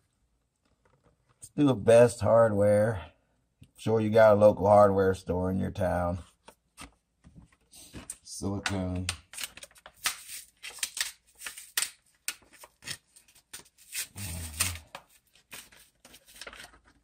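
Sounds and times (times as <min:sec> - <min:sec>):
plastic packaging crackling and ripping: 0:09.2 - 0:17.0.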